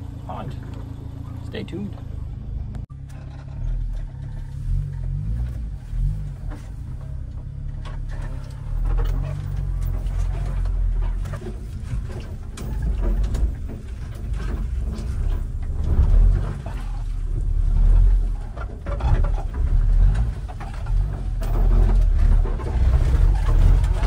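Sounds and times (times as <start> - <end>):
truck engine running: 0.0 - 24.0
knocks and rattles on bumps: 0.3 - 24.0.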